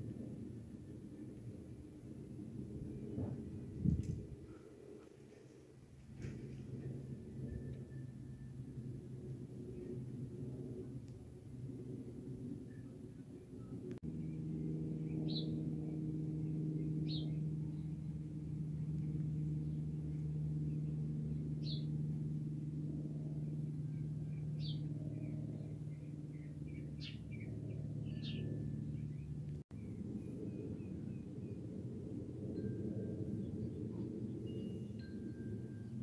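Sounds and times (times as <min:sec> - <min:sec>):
propeller plane engine drone: 0:00.0 - 0:36.0
small birds chirping: 0:14.1 - 0:18.3, 0:19.0 - 0:22.0, 0:23.9 - 0:30.0.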